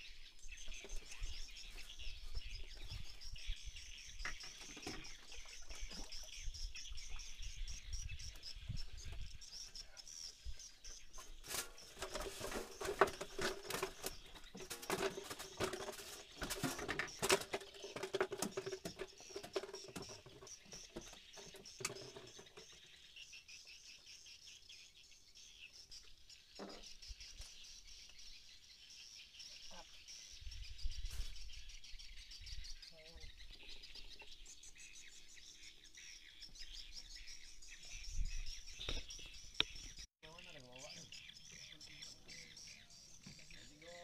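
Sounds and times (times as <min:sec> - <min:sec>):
crackling and rustling: 0:11.2 - 0:22.8.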